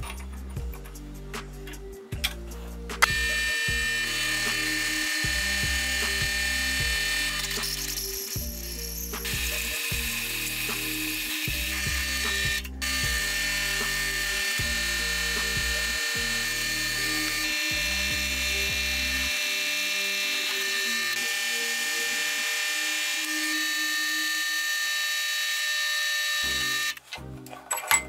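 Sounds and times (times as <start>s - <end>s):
background music: 0.0s - 25.5s, 26.2s - 28.0s
drill press whining through steel: 3.0s - 27.0s.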